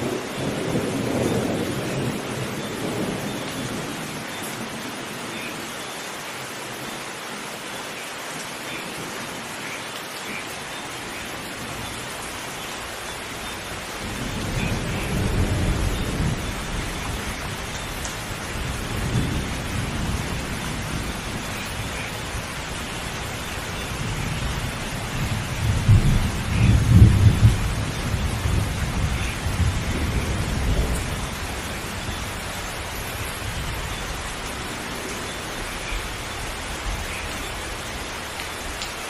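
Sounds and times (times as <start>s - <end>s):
low rolling thunder: 0.0s - 4.2s, 13.4s - 35.7s
heavy rain hissing: 0.0s - 39.0s.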